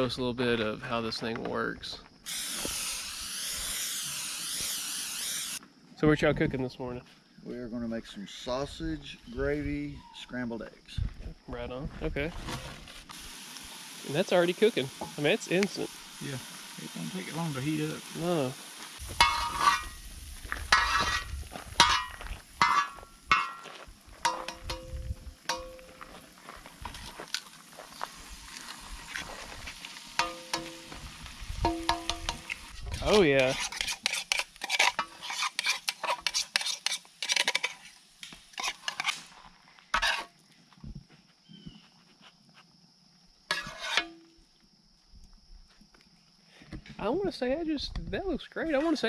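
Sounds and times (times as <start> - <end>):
meat sizzling: 2.2 - 5.6, 12.9 - 40.3
metal spatula scraping steel: 19.1 - 20.0, 20.7 - 23.6, 30.2 - 30.9, 31.6 - 39.3, 39.9 - 40.3, 43.5 - 44.3
sharp metallic clinks: 21.8 - 26.1, 30.2 - 30.9.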